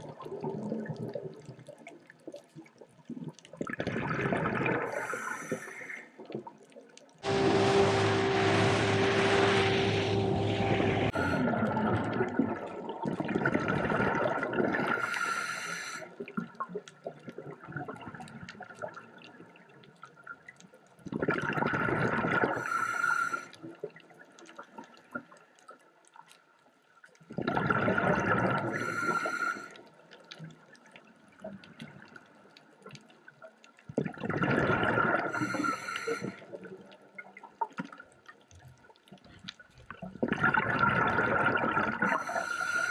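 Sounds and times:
diver's breath bubbles underwater: 0:03.1 - 0:06.0, 0:10.7 - 0:16.4, 0:21.1 - 0:23.6, 0:27.3 - 0:29.8, 0:34.0 - 0:36.7, 0:40.1 - 0:42.9
boat motor running: 0:07.2 - 0:11.4.

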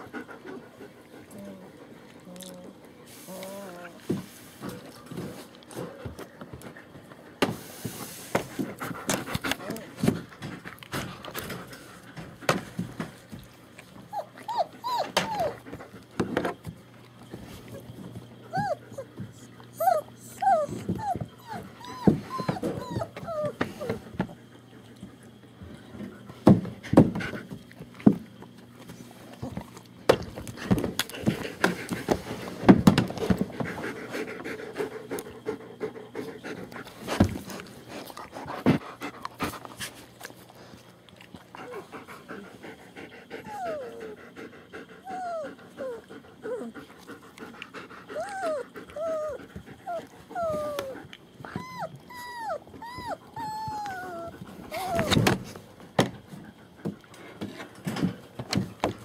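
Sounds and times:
puppies whimpering and whining: 0:13.9 - 0:16.0, 0:17.4 - 0:24.4, 0:41.6 - 0:47.3, 0:47.9 - 0:55.6.

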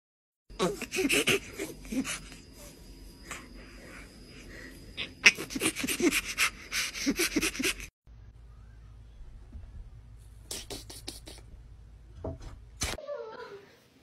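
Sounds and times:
chimpanzee laughing pants: 0:00.6 - 0:02.7, 0:05.0 - 0:07.9.

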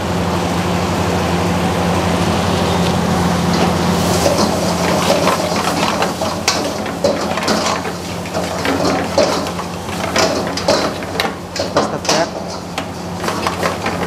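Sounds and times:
ladle scraping a frying pan: 0:03.5 - 0:14.0.

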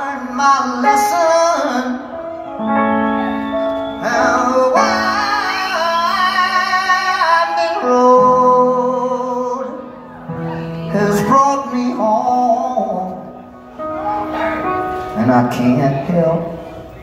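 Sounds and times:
upright piano chords: 0:00.0 - 0:17.0
person singing: 0:04.0 - 0:16.7.

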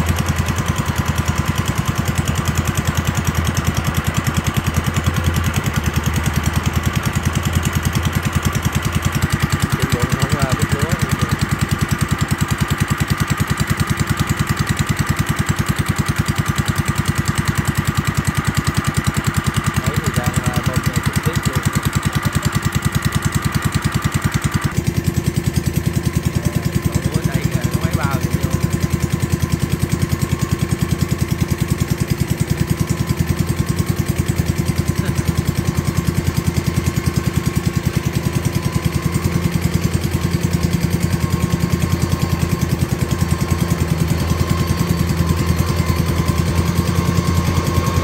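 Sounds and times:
tracked machine engine running: 0:00.0 - 0:48.0.

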